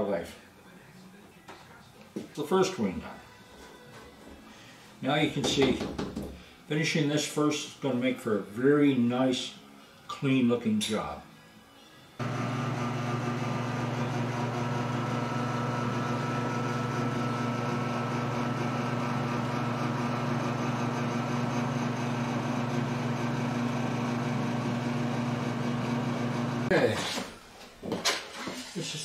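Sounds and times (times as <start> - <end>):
small electric motor humming: 12.2 - 26.7.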